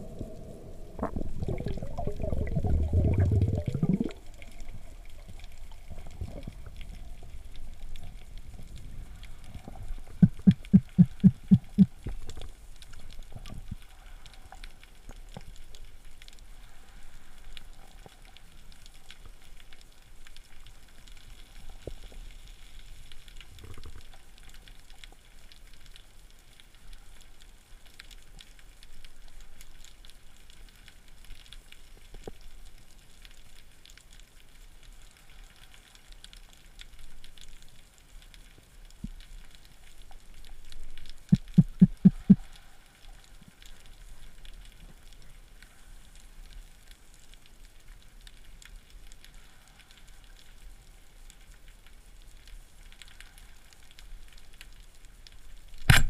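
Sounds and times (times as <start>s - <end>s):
underwater rush of moving water: 0.0s - 24.8s, 38.2s - 47.8s
faint low water wash: 0.0s - 56.0s
strong low thumps: 10.2s - 11.9s, 41.4s - 42.4s.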